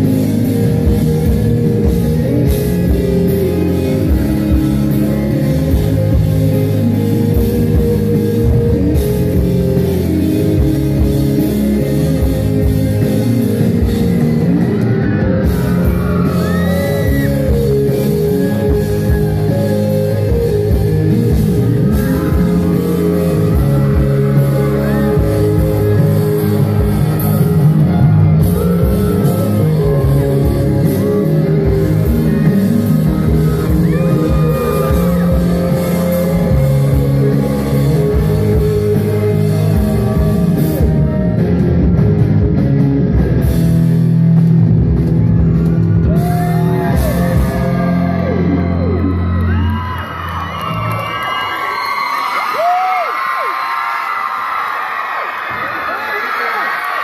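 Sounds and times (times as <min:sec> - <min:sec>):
live rock band: 0:00.0 - 0:57.0.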